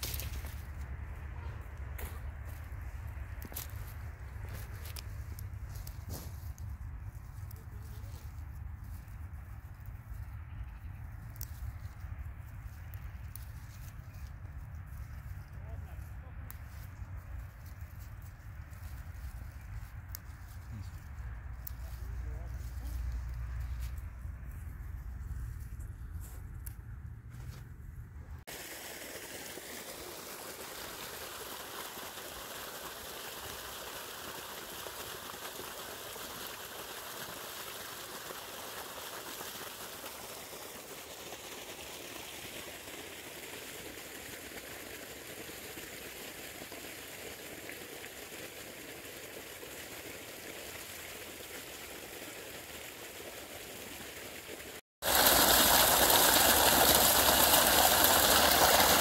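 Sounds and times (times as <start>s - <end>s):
water flowing along furrows: 0.0s - 26.8s, 28.3s - 59.0s
water gushing from pipe: 28.5s - 59.0s.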